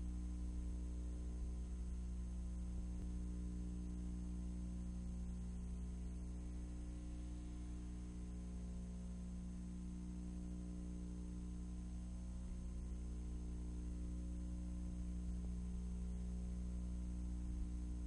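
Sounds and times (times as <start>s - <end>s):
low hum of held tones: 0.0s - 18.0s
faint hiss: 4.1s - 10.0s.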